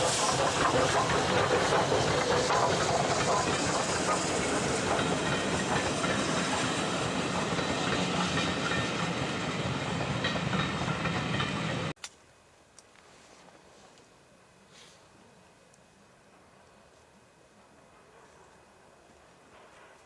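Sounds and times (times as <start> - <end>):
steam hiss: 0.0 - 11.9
train rumble and rail clatter: 0.0 - 12.0, 16.1 - 20.0.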